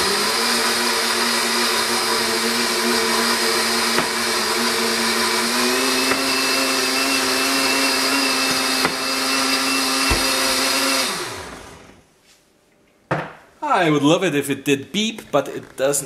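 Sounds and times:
blender motor whine: 0:00.0 - 0:12.0.

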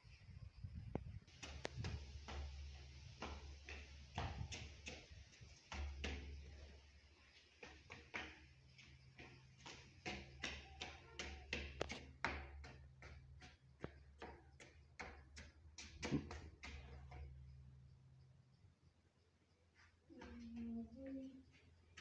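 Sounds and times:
sandals slapping on concrete: 0:01.3 - 0:17.4.

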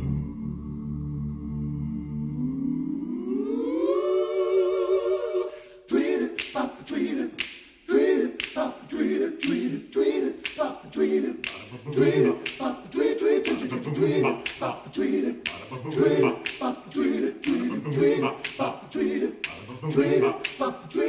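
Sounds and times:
a cappella singing: 0:00.0 - 0:21.0
snapping beats: 0:06.1 - 0:21.0.

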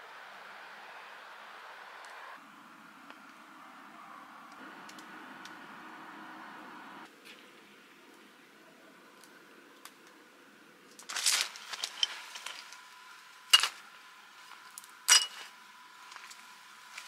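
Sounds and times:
rustle of groundsheet: 0:10.9 - 0:17.0
glass bottles clinking: 0:15.1 - 0:15.4.

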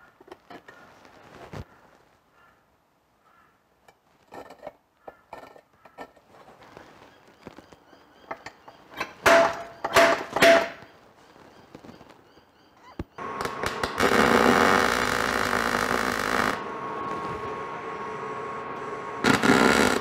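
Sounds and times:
welder arc on steel: 0:13.2 - 0:20.0
short loud bursts: 0:18.8 - 0:20.0.

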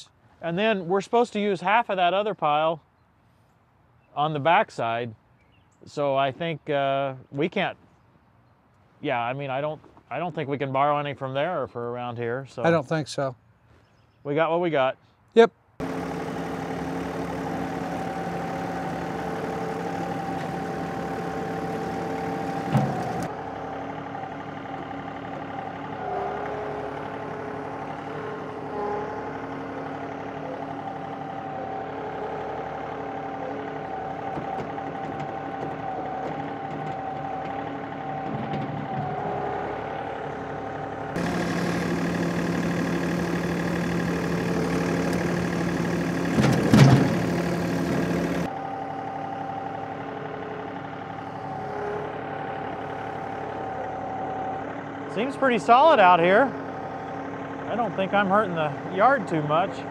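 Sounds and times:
tractor diesel engine running: 0:15.8 - 0:59.9.

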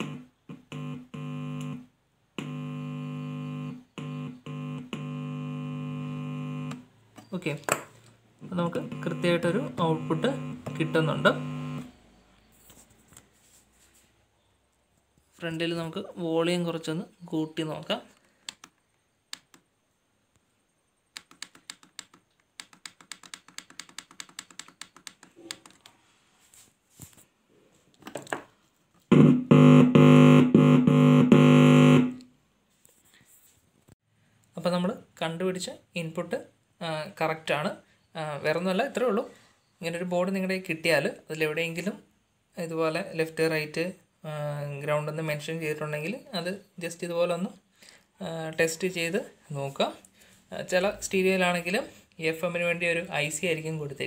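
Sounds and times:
speaker buzzing: 0:00.0 - 0:07.1, 0:08.4 - 0:12.3, 0:29.1 - 0:32.3.

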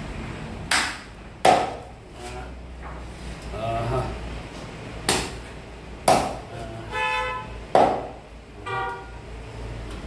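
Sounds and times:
knife chopping onto wooden block: 0:00.7 - 0:01.9, 0:06.0 - 0:06.4, 0:07.7 - 0:08.2
vehicle horn toots: 0:06.8 - 0:07.7, 0:08.6 - 0:09.3.

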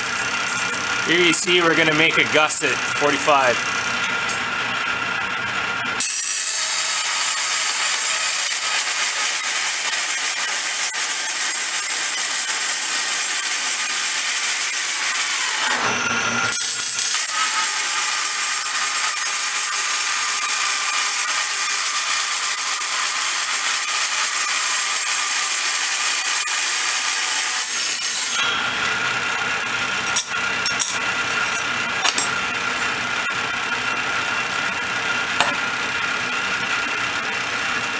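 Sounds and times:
table saw cutting steel: 0:00.0 - 0:37.9
saw running unloaded: 0:06.0 - 0:37.9.

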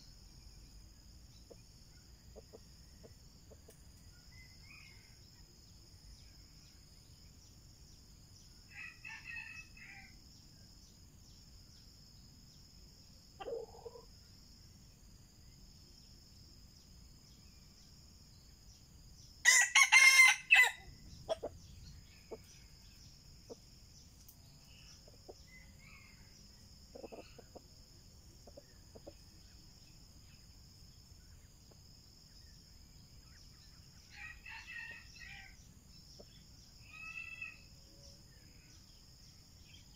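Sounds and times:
rooster crowing: 0:19.4 - 0:20.9.

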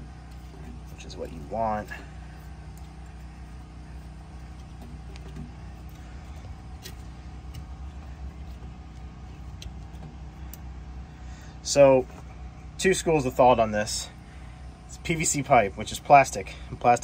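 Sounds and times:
motor humming: 0:00.0 - 0:17.0.

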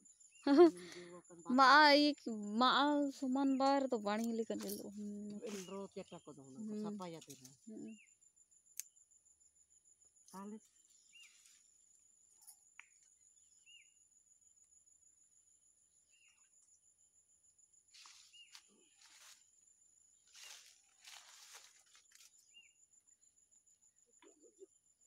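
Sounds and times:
high insect trill: 0:00.0 - 0:25.0
rustling branches and leaves: 0:04.6 - 0:05.9, 0:17.9 - 0:19.5, 0:20.2 - 0:22.6
bird chirping: 0:10.3 - 0:11.6, 0:12.3 - 0:14.1.

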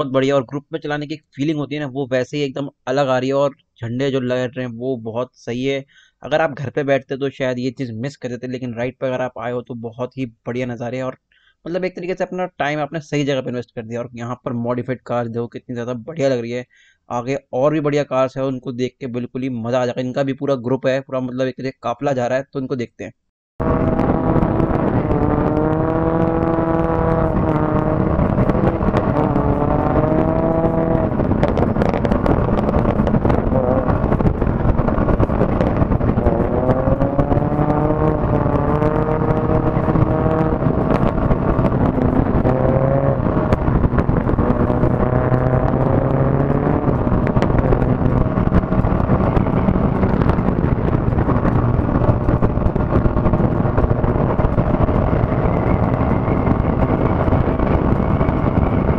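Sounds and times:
motorcycle engine accelerating: 0:23.6 - 0:58.9
wind and tyre noise: 0:23.6 - 0:58.9.

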